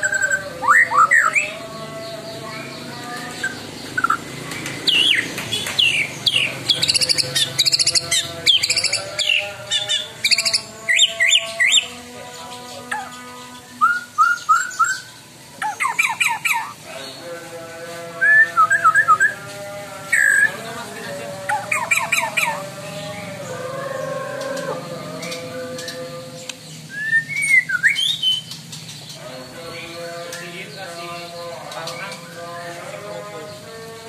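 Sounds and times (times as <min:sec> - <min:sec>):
harsh bird notes: 0:00.0 - 0:34.0
bird singing whistled phrases: 0:13.8 - 0:15.1, 0:26.9 - 0:28.5.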